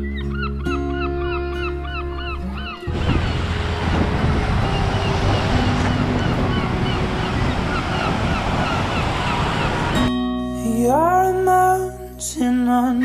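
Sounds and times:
wind buffeting microphone: 2.5 - 10.1
surf washing over sand: 2.9 - 10.1.

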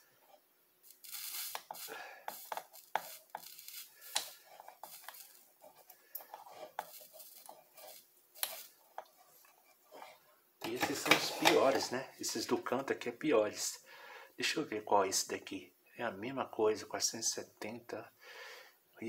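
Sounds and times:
soldering iron scraping and clicking: 0.9 - 10.1, 10.7 - 11.8.

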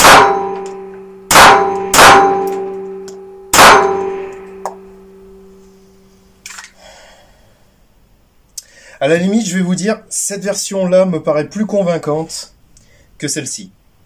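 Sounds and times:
pistol shots with metallic ringing: 0.0 - 5.4.

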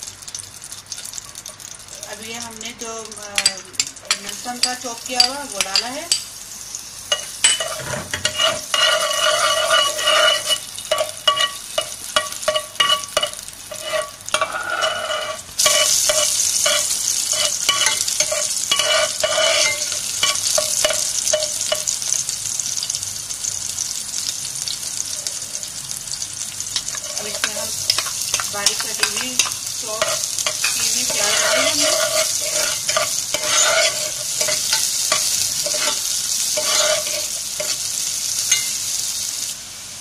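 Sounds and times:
garlic sizzling in hot oil: 0.0 - 40.0
spoon scraping a pan: 3.4 - 6.2, 7.1 - 22.0, 26.8 - 38.9.

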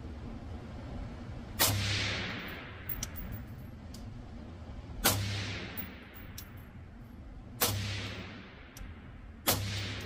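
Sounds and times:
suppressed rifle shots: 1.6 - 2.8, 5.0 - 6.0, 7.6 - 8.6, 9.4 - 10.0.

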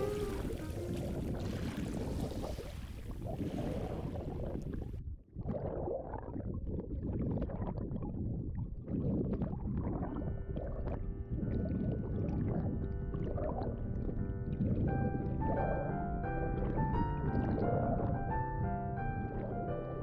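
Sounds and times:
held musical tones: 0.0 - 1.4
sea water washing: 0.0 - 5.0, 5.6 - 20.0
underwater rumble and bubbling: 0.0 - 20.0.

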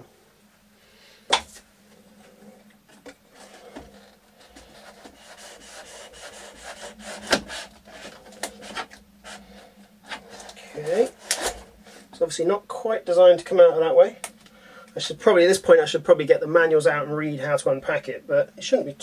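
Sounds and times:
rubbing and scraping of parts: 1.3 - 12.3.

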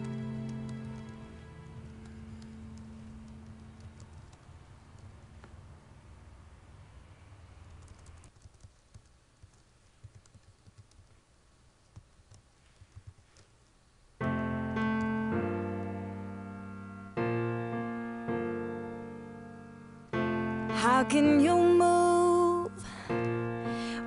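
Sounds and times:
piano playing slow chords: 0.0 - 4.0, 14.2 - 24.0
keyboard typing clicks: 1.8 - 5.2, 7.7 - 11.2, 11.8 - 13.8, 14.6 - 15.2.

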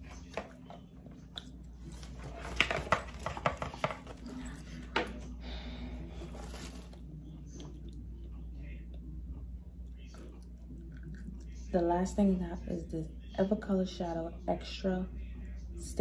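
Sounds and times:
packaging clicks and crinkles: 6.2 - 7.0.

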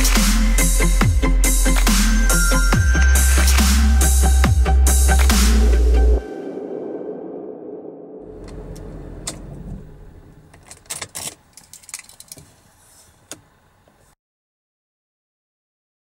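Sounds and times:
music: 0.0 - 7.8
low rumble: 2.8 - 10.6
keys jangling and clicking: 10.5 - 12.5.

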